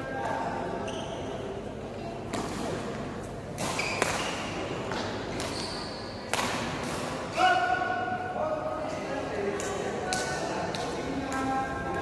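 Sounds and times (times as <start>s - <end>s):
shoes squeaking on court floor: 0.8s - 1.6s, 2.3s - 6.2s
racket hitting shuttlecock: 3.5s - 7.2s.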